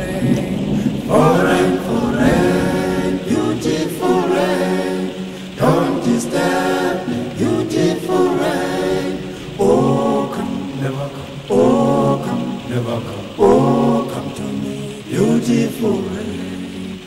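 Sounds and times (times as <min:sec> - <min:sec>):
a cappella choir singing: 0:00.0 - 0:17.0
singers breathing: 0:00.5 - 0:01.1, 0:05.1 - 0:05.6, 0:09.2 - 0:09.6.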